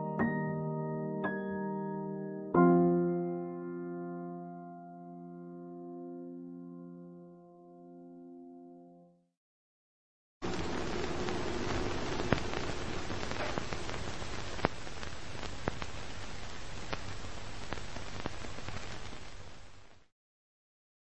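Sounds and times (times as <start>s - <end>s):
sharp clicks and pops: 10.4s - 16.0s
crackling hiss: 10.4s - 20.1s.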